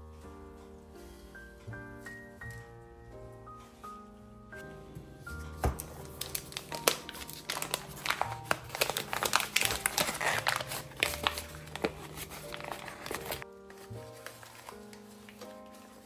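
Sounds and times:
foil wrapper crinkling: 5.8 - 16.0.

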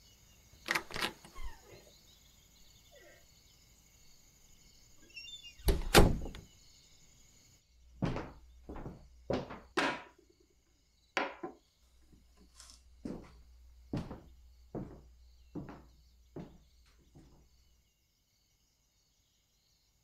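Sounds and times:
crickets chirping: 0.0 - 20.0
heavy wooden thumps: 8.0 - 10.2
knocks and clunks on wood: 8.0 - 10.2, 11.2 - 12.2, 13.9 - 17.4.

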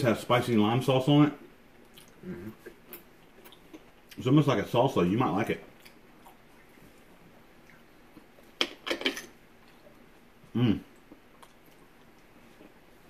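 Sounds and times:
person humming: 2.2 - 2.6, 10.5 - 10.9.

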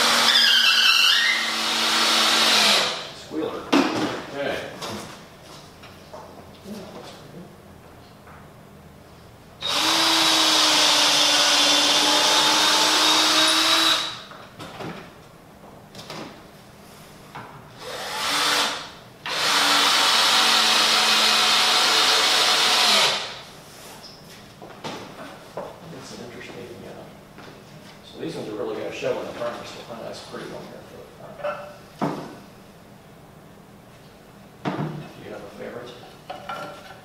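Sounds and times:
cordless drill running: 0.0 - 3.0, 9.6 - 14.2, 17.8 - 23.4.

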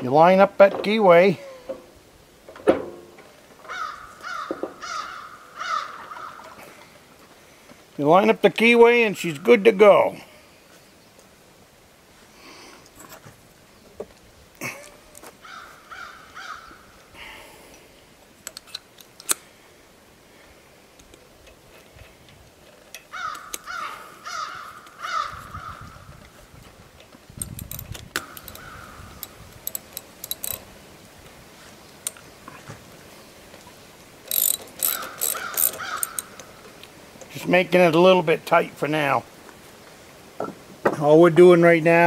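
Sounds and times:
crow cawing: 3.7 - 6.6, 15.4 - 17.0, 23.1 - 26.0, 28.5 - 29.1, 35.0 - 36.4
metal clicks and clinks: 27.4 - 30.7, 34.2 - 36.5.

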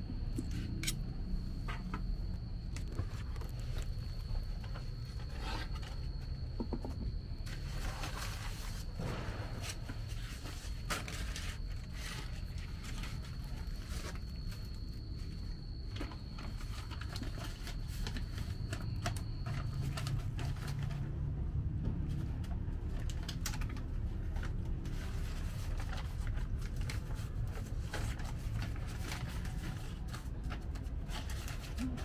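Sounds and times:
thin high whine: 0.0 - 20.9
low steady hum: 0.0 - 32.0.

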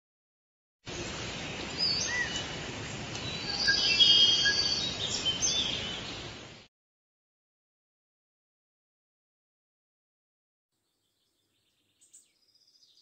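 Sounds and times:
birds chirping and whistling: 0.9 - 6.4, 11.4 - 13.0
steady background hiss: 0.9 - 6.7.

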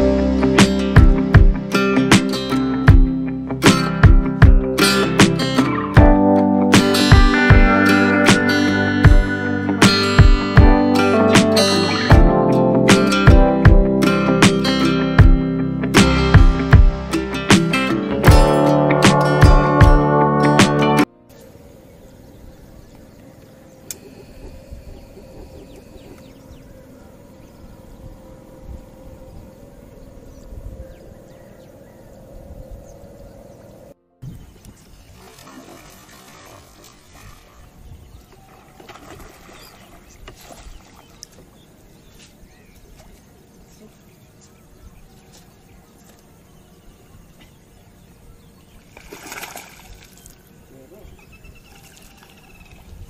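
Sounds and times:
faint bird chirps: 21.3 - 35.4, 36.4 - 53.0.

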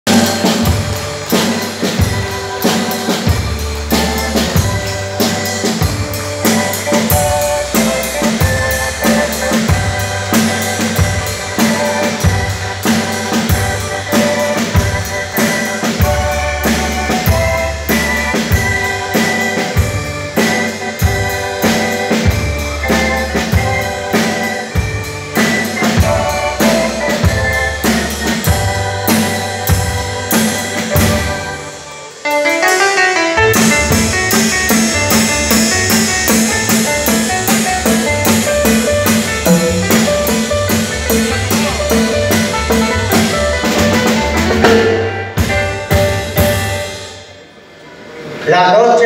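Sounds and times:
music with drum beat: 0.0 - 47.5.

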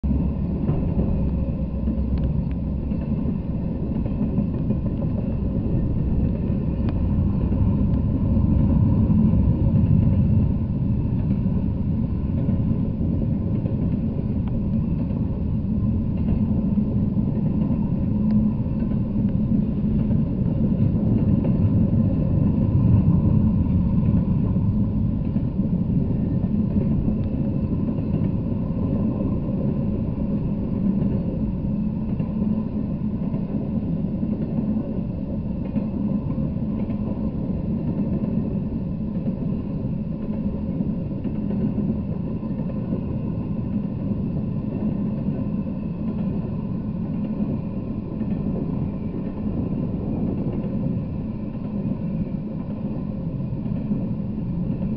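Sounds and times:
train wheels rumbling on rails: 0.0 - 54.9
faint clicks: 2.1 - 3.1.

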